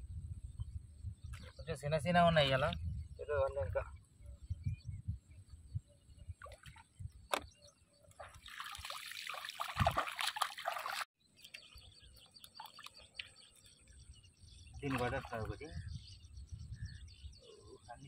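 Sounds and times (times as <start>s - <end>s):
bare feet splashing through water: 8.2s - 11.1s
faint bird chirps: 11.2s - 18.0s.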